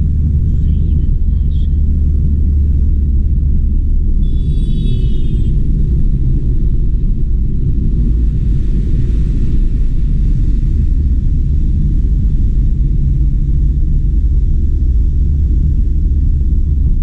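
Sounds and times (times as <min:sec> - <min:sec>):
high-pitched whine: 0:00.0 - 0:07.3
car cabin engine and tyre rumble: 0:00.0 - 0:17.0.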